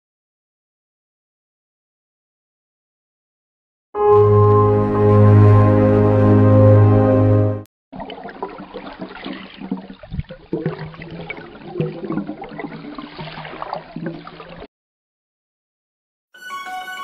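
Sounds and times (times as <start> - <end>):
water bubbling and gurgling underwater: 8.0 - 14.7.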